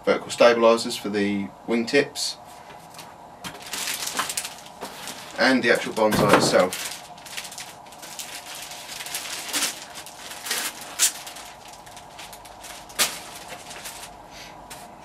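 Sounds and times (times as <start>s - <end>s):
plastic bag crinkling: 3.5s - 14.3s.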